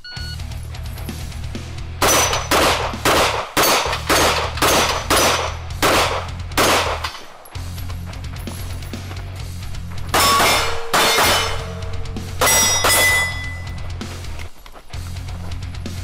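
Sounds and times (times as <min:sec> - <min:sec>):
background music: 0:00.0 - 0:16.0
rapid handgun fire: 0:02.0 - 0:07.3.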